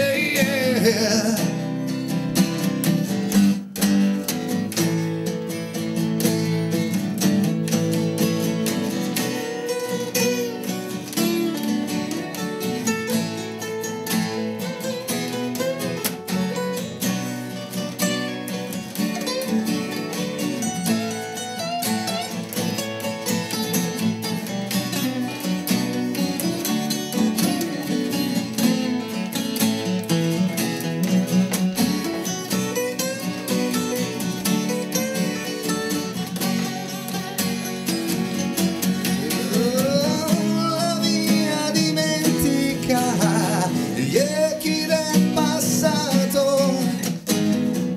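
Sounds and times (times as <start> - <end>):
man singing: 0.0 - 2.1, 39.0 - 47.4
acoustic bass guitar: 0.0 - 47.9
acoustic guitars strumming: 0.0 - 47.9.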